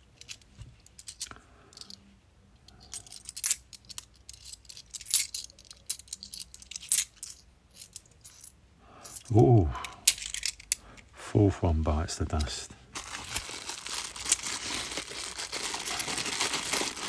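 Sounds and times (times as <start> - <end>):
coins clinking: 2.8 - 9.4.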